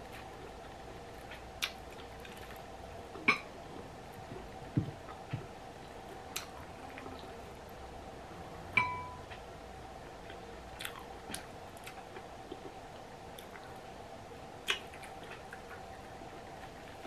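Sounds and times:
person chewing food: 0:00.0 - 0:07.4, 0:10.0 - 0:13.8, 0:14.6 - 0:17.0.

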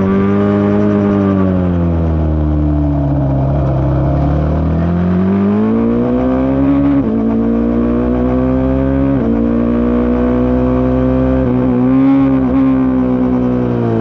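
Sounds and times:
racing engine accelerating: 0:00.0 - 0:14.0.

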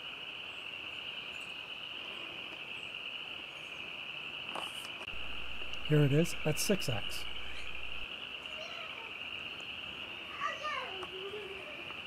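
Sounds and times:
chorus of calling animals: 0:05.2 - 0:11.9.

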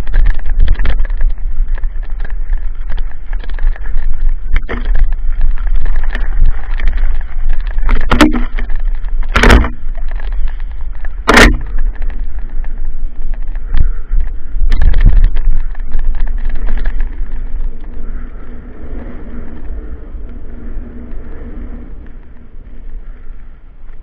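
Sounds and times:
tyres crunching over loose stones: 0:00.0 - 0:24.0
wind rumbling on microphone: 0:00.0 - 0:24.0
loud knocks: 0:08.0 - 0:08.5, 0:09.3 - 0:09.8, 0:11.2 - 0:11.8.

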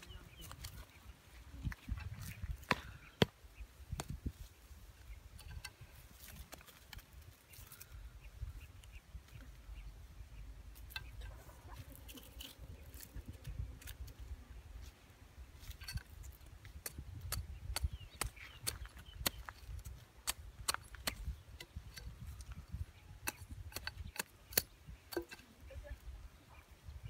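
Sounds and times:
twigs and cord rustling: 0:00.0 - 0:03.0, 0:04.1 - 0:09.8, 0:10.6 - 0:17.2
hatchet knocking wooden stake: 0:23.2 - 0:25.4.

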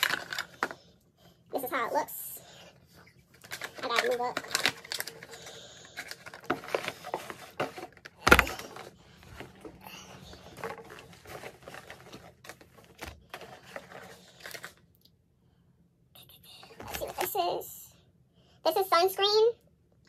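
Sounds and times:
packaging rustling and clicking: 0:00.0 - 0:00.8, 0:03.3 - 0:14.8.

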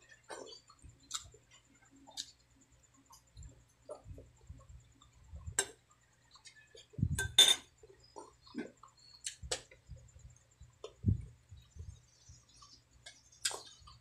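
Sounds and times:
eating and chewing: 0:00.0 - 0:07.1, 0:07.7 - 0:14.0
metal spoon clinking glass bowl: 0:07.2 - 0:07.7.

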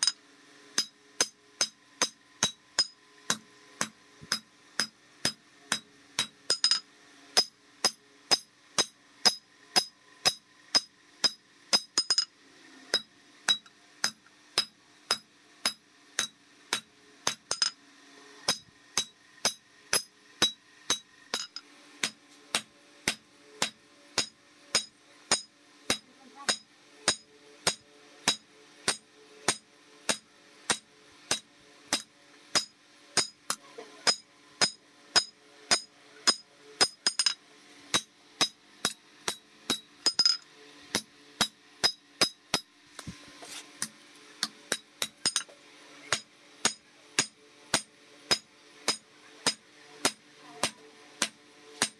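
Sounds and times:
hammer ringing on anvil: 0:23.6 - 0:30.2.

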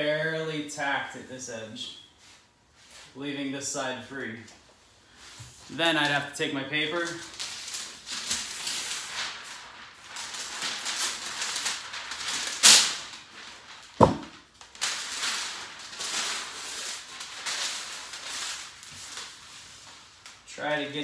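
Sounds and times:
paper crinkling and rustling: 0:07.0 - 0:20.5
sharp knock: 0:14.0 - 0:14.3.

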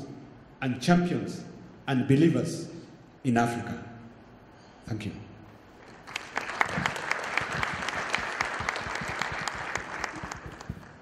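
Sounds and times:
audience applauding: 0:05.8 - 0:11.0.

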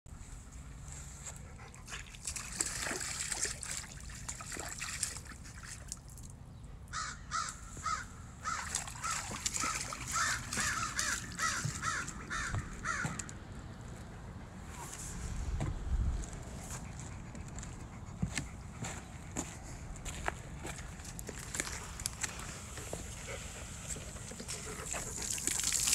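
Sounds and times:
dog paws splashing in stream: 0:01.2 - 0:06.4, 0:07.8 - 0:13.3, 0:18.8 - 0:25.9.

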